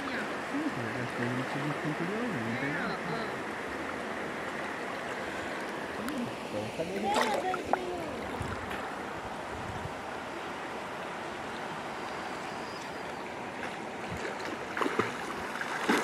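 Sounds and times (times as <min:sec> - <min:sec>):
water sloshing from swimming: 0:03.6 - 0:09.0, 0:12.2 - 0:16.0.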